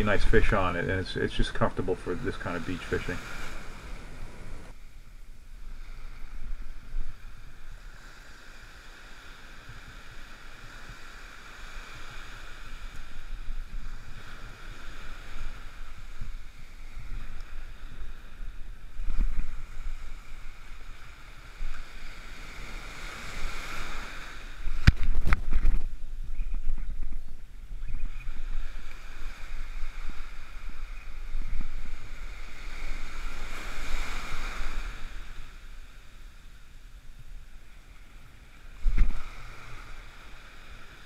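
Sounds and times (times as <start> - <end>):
waves breaking on sand: 0.0 - 27.0, 27.6 - 41.0
wind buffeting microphone: 11.8 - 35.2.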